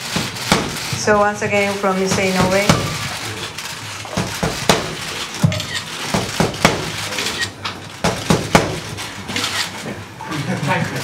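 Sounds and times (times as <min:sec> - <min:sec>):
boxing gloves smacking focus mitt: 0:00.2 - 0:00.8.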